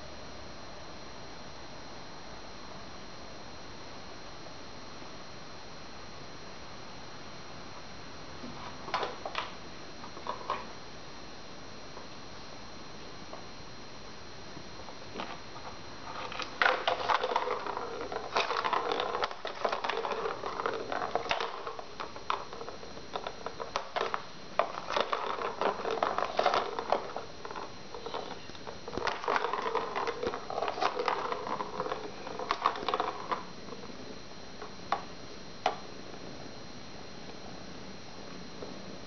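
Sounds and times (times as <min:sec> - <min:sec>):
balls rattling in plastic toy track: 0:16.0 - 0:33.5.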